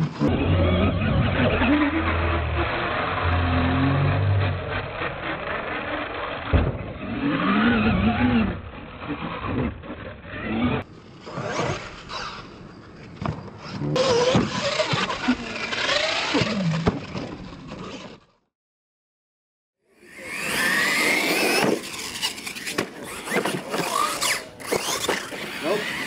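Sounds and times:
toy truck motors whining: 0.0s - 18.4s, 19.9s - 26.0s
sharp thump: 6.5s - 6.9s.

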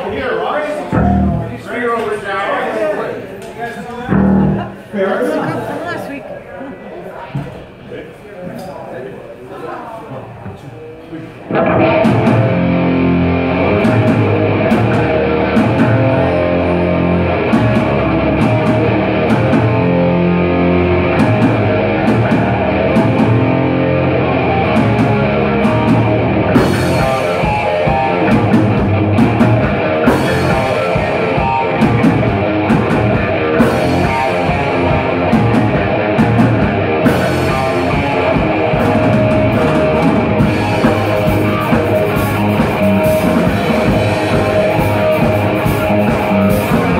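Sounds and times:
drum kit: 0.9s - 1.5s, 4.1s - 4.7s, 11.5s - 46.9s
distorted electric guitar: 0.9s - 1.6s, 4.1s - 4.8s, 11.5s - 46.9s
electric bass: 0.9s - 1.6s, 4.1s - 4.8s, 11.5s - 46.9s.

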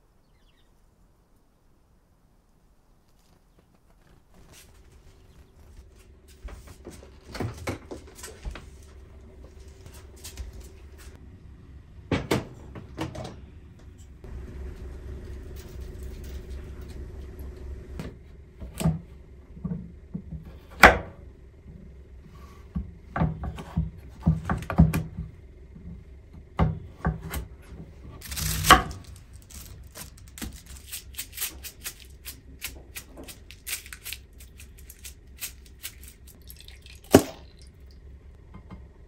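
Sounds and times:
low hum: 3.6s - 39.0s.

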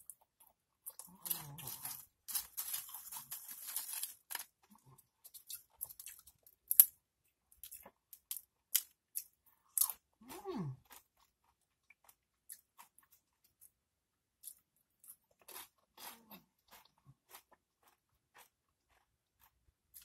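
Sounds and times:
chips crunching and snapping: 0.0s - 7.0s, 7.6s - 10.0s
tortilla chips rustling and crackling: 1.0s - 6.9s.

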